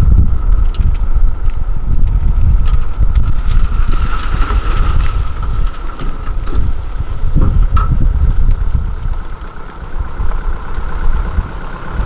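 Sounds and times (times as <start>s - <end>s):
dump truck engine running: 0.0s - 12.0s
wind rumble on microphone: 0.0s - 12.0s
soil sliding out: 0.4s - 12.0s
steady high whine: 4.6s - 12.0s.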